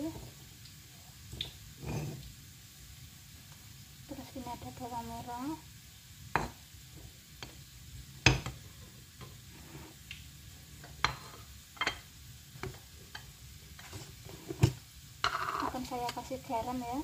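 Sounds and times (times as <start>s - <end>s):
items tapping into stone mortar: 15.2s - 16.2s.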